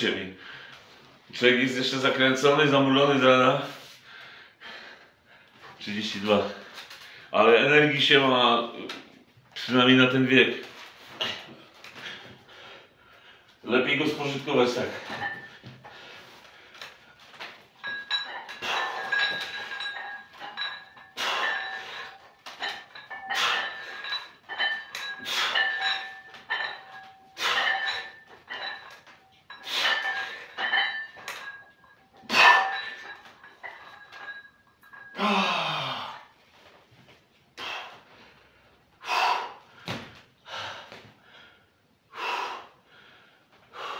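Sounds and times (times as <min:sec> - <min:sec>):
man grunting: 0:35.2 - 0:36.2.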